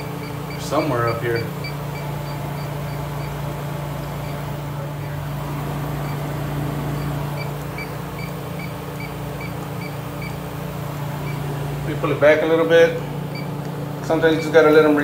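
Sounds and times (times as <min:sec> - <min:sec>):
leak detector beeping: 0:00.0 - 0:04.8, 0:05.4 - 0:13.7
steady low hum: 0:00.0 - 0:15.0.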